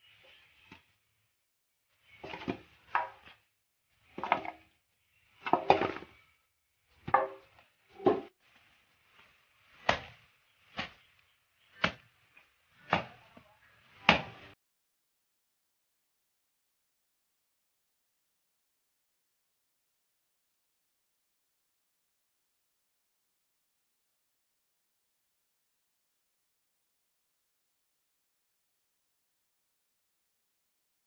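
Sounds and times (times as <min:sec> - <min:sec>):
machete chopping on wooden block: 0:09.8 - 0:10.2, 0:12.9 - 0:13.2, 0:14.1 - 0:14.4.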